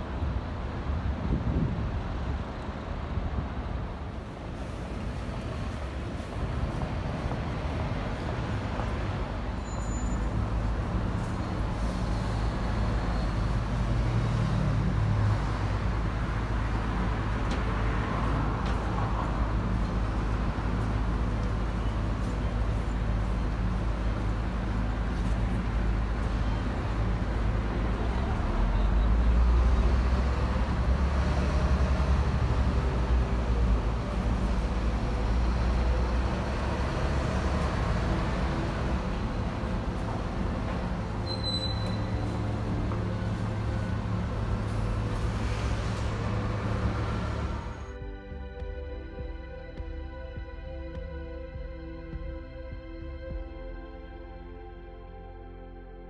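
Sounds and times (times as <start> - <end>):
traffic hiss: 0.0 - 48.0
low engine rumble: 0.0 - 56.0
passing engine hum: 10.2 - 48.3.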